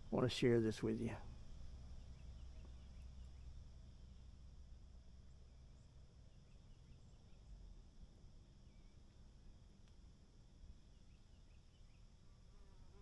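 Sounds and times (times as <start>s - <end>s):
high insect hum: 0.0s - 13.0s
faint chirps: 0.1s - 4.5s, 5.2s - 7.6s.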